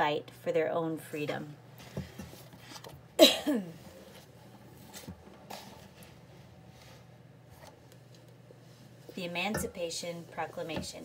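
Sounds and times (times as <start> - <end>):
paper and book rustling: 4.1 - 7.7.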